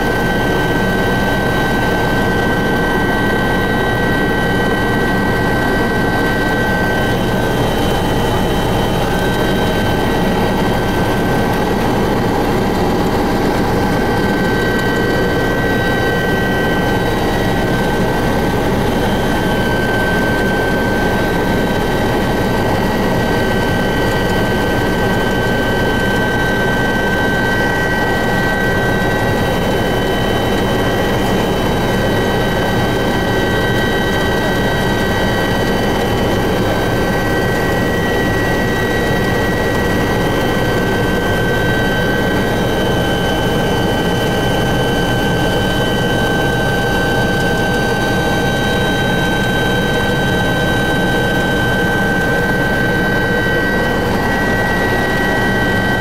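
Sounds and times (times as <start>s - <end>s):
helicopter engine and rotor drone: 0.0s - 56.0s.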